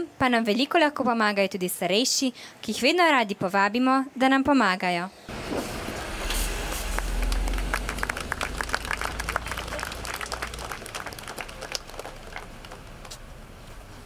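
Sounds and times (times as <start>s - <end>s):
audience clapping: 6.9s - 13.2s.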